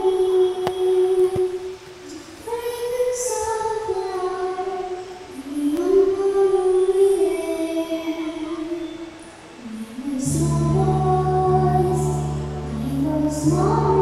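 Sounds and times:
voices singing slow song: 0.0 - 14.0.

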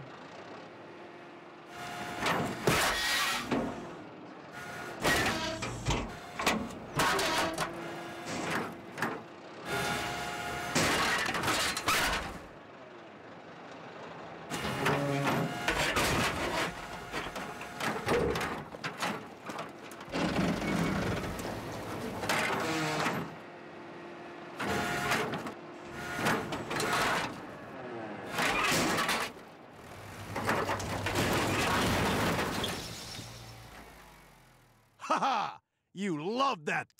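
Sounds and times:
excavator engine and hydraulics whirring: 0.0 - 35.0.

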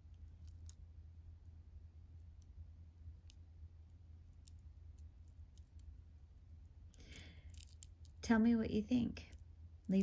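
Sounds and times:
low steady hum: 0.0 - 10.0
charm bracelet beads clicking: 0.1 - 0.9, 2.2 - 8.2.

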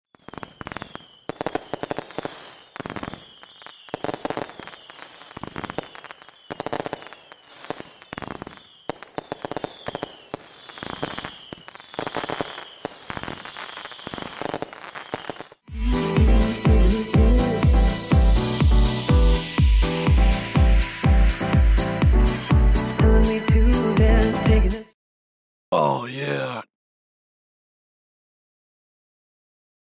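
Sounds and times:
fireworks shells bursting: 0.1 - 20.9
fireworks whistles: 0.1 - 22.9
fireworks crackling: 0.1 - 23.0.

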